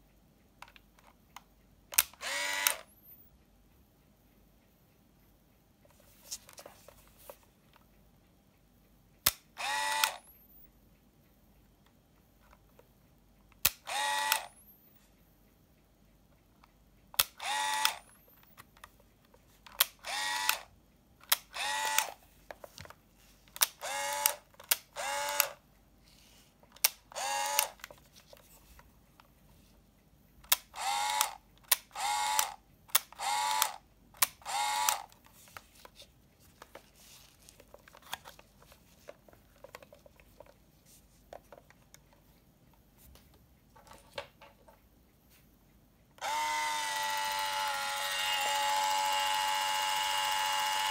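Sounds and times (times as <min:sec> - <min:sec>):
camera motor whirring: 0:02.2 - 0:03.1, 0:09.6 - 0:10.4, 0:13.8 - 0:14.8, 0:17.3 - 0:18.4, 0:20.0 - 0:20.7, 0:21.5 - 0:22.2, 0:23.6 - 0:25.6, 0:26.8 - 0:27.9, 0:30.6 - 0:32.6, 0:33.2 - 0:35.6, 0:46.2 - 0:50.9
film rewind motor whir: 0:46.2 - 0:50.9.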